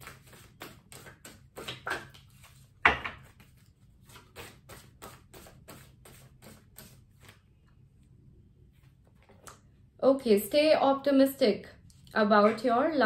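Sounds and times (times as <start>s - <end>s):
cards being shuffled: 0.0s - 7.4s.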